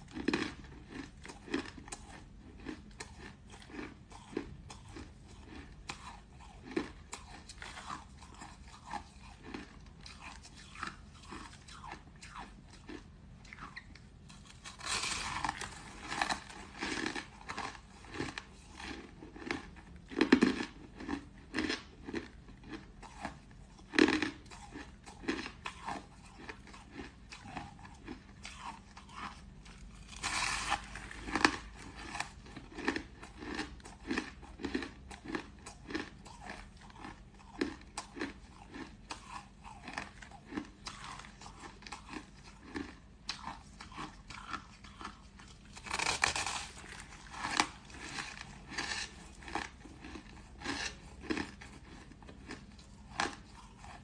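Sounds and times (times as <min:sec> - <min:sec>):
crushed ice crunching: 0:30.1 - 0:30.8.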